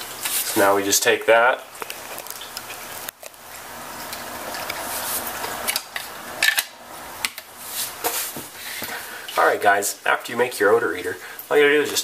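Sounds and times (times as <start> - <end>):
items rustling on tabletop: 1.7 - 6.6, 7.6 - 9.1.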